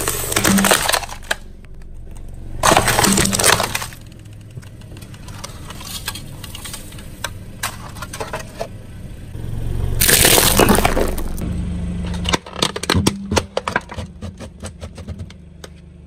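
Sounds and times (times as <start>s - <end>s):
plastic shell crunching: 0.0s - 8.6s, 10.0s - 11.4s.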